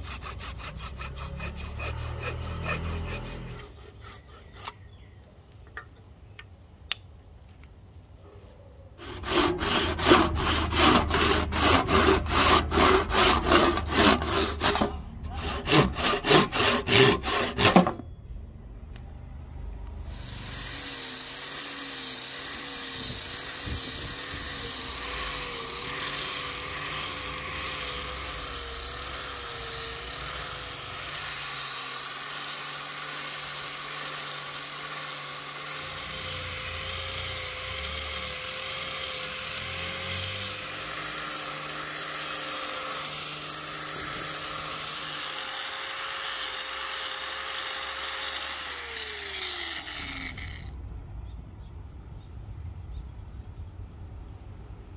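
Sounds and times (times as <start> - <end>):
sanding disc hissing on wood: 0.0 - 4.7.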